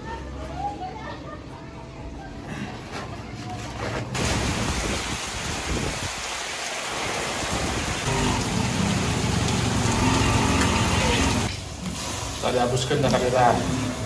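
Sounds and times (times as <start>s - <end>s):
heavy rain on roofs and street: 4.2s - 14.0s
motorbike engine hum: 8.1s - 11.6s.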